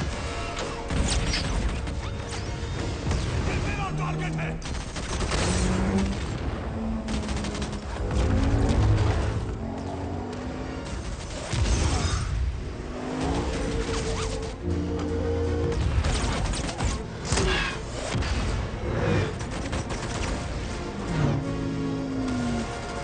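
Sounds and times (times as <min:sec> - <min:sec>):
dramatic orchestral score: 0:00.0 - 0:23.0
explosions and crashes: 0:04.6 - 0:09.6, 0:10.8 - 0:14.6.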